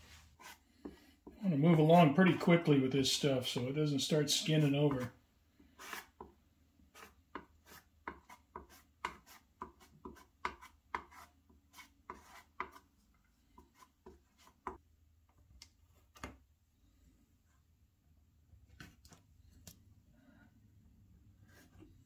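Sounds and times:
hand spreader scraping and tapping: 5.8s - 12.9s.

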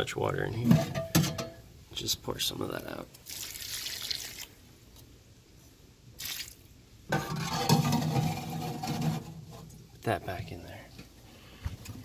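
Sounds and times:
water pouring from metal pan: 3.2s - 4.5s.

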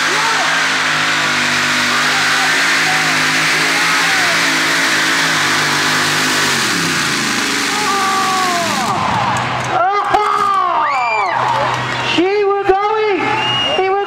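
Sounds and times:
tractor engine running hard: 0.0s - 10.5s.

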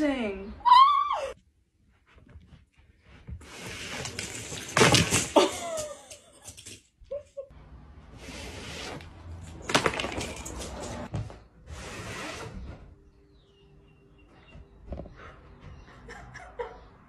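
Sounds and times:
puzzle pieces clattering: 9.4s - 11.1s.

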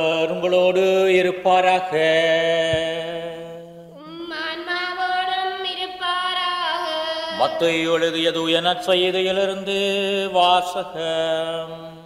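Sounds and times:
man chanting: 7.3s - 12.0s.

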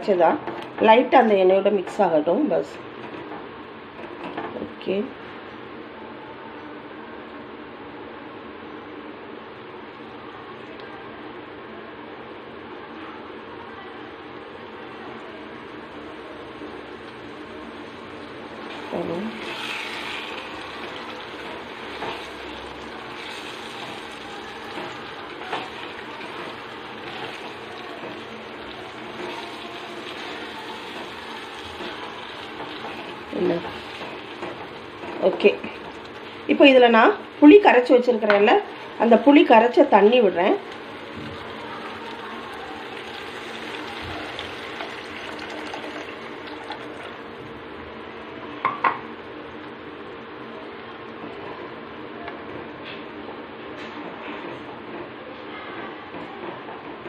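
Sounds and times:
paste sizzling in oil: 18.0s - 35.0s.

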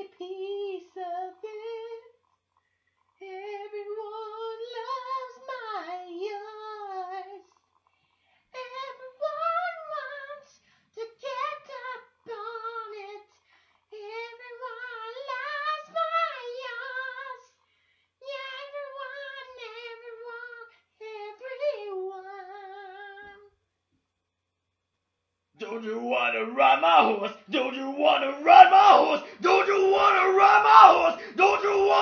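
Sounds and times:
person singing a cappella: 0.0s - 2.1s, 3.2s - 7.5s, 8.5s - 17.5s, 18.2s - 23.5s, 25.6s - 32.0s
singer breathing: 13.4s - 13.9s, 17.6s - 18.2s, 31.2s - 31.4s.

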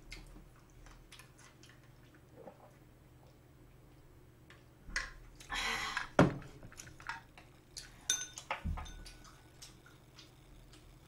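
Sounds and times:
chopsticks clinking: 7.8s - 9.4s.

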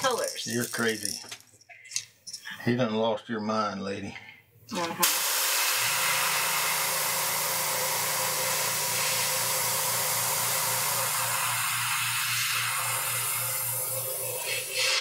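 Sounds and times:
airbrush air hiss: 6.6s - 11.5s.

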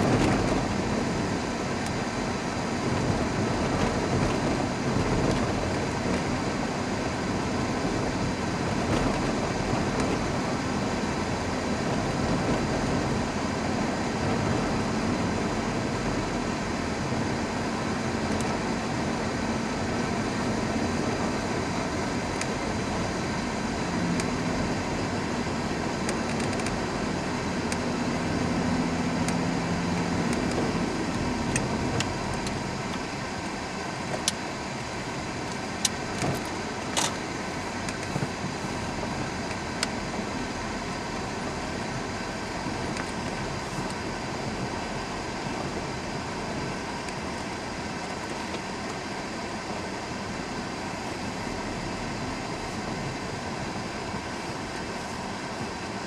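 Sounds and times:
car engine hum: 0.0s - 56.0s.

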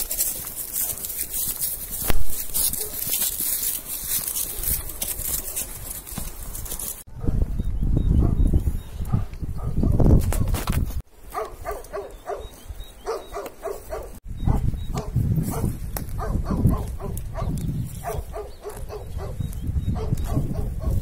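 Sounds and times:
dog barking: 2.7s - 3.1s, 7.2s - 7.4s, 8.2s - 8.4s, 9.1s - 10.5s, 11.3s - 21.0s.

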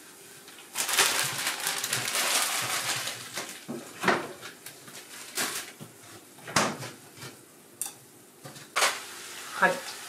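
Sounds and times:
meat sizzling in a pan: 8.8s - 10.0s.

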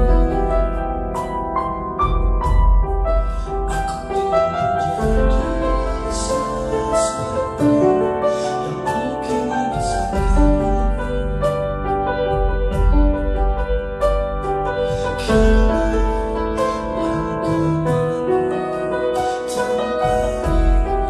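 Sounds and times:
deep piano bass notes: 0.0s - 21.0s
piano melody over chords: 0.0s - 21.0s.

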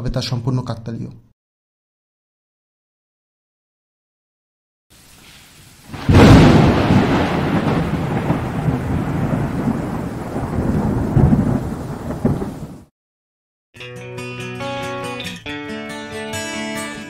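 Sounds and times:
sharp thunder crack: 5.9s - 12.9s
thunder rumbling: 5.9s - 12.9s.

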